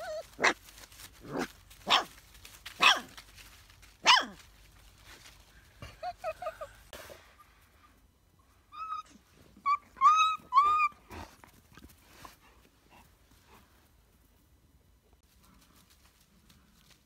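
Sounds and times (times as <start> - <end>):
puppy whimpering: 8.8 - 11.0.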